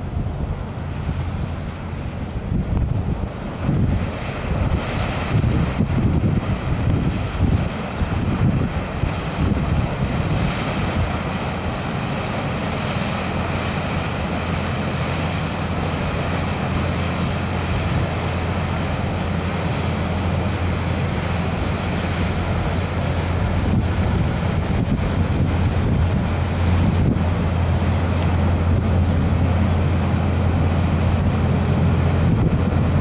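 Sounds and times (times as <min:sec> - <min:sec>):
ship diesel engine drone: 0:00.0 - 0:33.0
wind buffeting microphone: 0:00.0 - 0:33.0.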